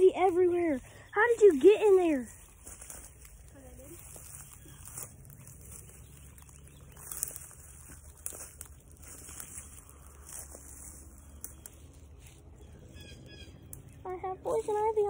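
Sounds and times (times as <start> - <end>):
footsteps through dry grass: 0.0 - 15.0
twigs snapping: 4.0 - 12.4, 13.6 - 14.0.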